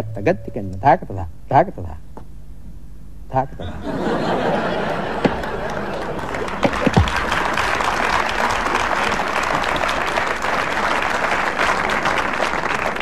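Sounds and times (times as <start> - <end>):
low tabla strokes: 0.0 - 1.1
audience applauding: 4.3 - 13.0.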